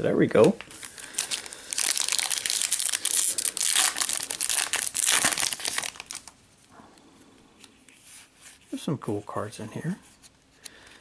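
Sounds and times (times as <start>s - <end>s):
foil wrapper crinkling: 0.7s - 6.4s.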